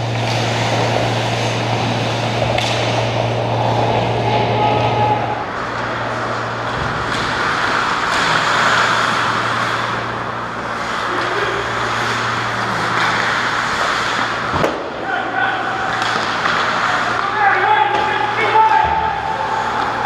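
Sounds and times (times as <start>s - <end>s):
low hum: 0.0s - 17.2s
stick or puck clacks: 2.5s - 2.9s, 15.9s - 17.3s
skate blades scraping ice: 10.8s - 14.9s.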